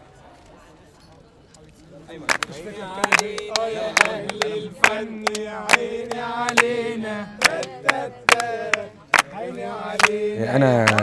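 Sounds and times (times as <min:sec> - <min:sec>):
group of people singing: 0:02.2 - 0:11.0
hand claps: 0:02.3 - 0:06.8, 0:07.4 - 0:10.2.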